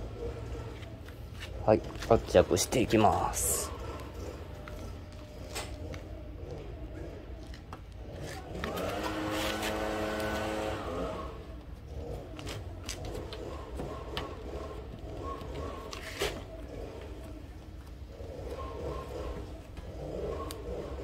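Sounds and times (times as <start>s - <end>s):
brush cutter engine revving: 8.5s - 11.4s.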